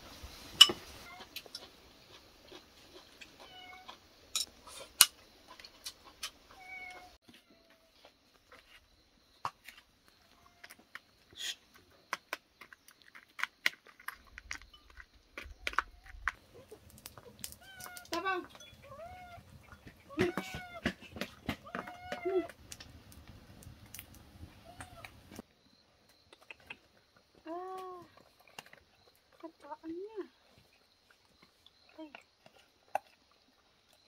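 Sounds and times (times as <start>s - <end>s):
cat meowing: 6.5s - 7.2s, 16.6s - 18.2s, 21.6s - 22.5s.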